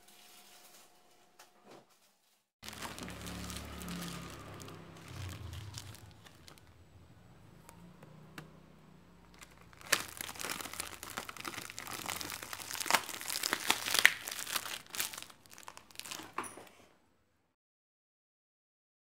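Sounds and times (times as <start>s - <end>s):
plastic sheet crinkling: 2.0s - 6.8s, 9.3s - 16.5s.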